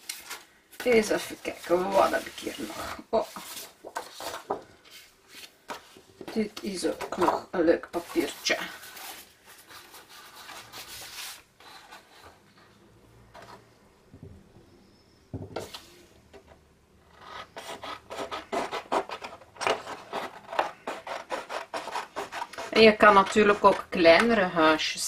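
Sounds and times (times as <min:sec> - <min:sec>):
paper handling: 0:00.0 - 0:06.0.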